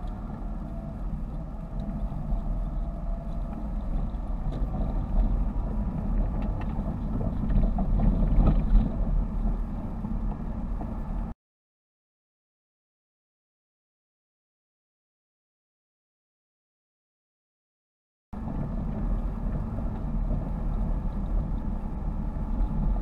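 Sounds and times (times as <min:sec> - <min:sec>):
car engine and tyre noise: 0:00.0 - 0:11.4, 0:18.4 - 0:23.0.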